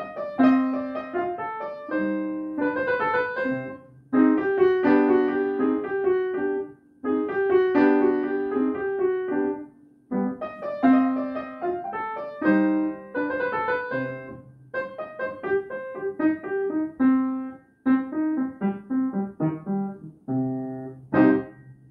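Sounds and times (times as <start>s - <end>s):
upright piano playing: 0.0s - 21.9s.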